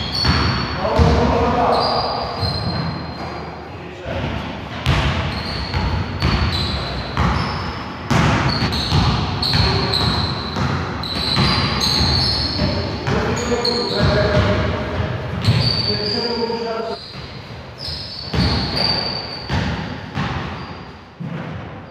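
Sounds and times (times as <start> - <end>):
basketball bouncing on gym floor: 0.0 - 1.5, 4.7 - 16.0, 17.1 - 21.7
sneaker squeaks: 0.0 - 3.7, 4.8 - 21.9.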